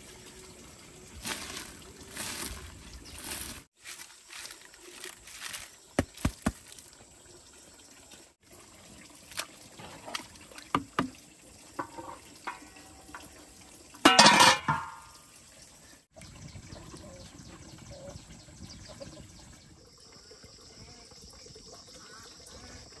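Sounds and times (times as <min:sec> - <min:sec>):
paddle knocking on pot: 0:10.7 - 0:11.2
metal lid clattering: 0:14.0 - 0:15.1.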